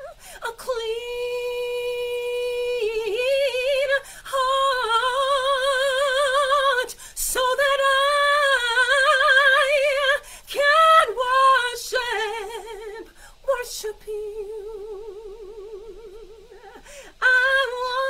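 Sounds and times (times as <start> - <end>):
woman singing a cappella: 0.0 - 18.0
woman drawing breath: 10.2 - 10.5, 13.2 - 13.4, 16.5 - 17.2.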